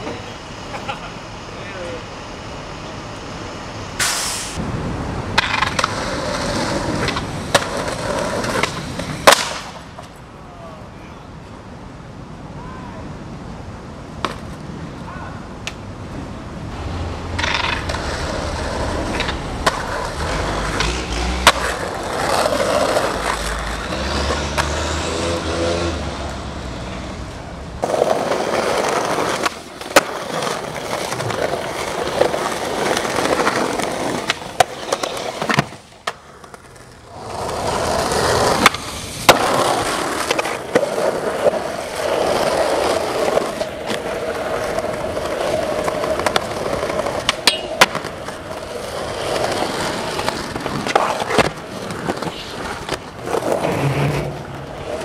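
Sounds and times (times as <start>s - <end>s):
skateboard wheels rolling on pavement: 0.0s - 55.0s
skateboard clacking on ground: 5.3s - 10.3s, 14.2s - 14.8s, 17.3s - 24.8s, 27.8s - 55.0s.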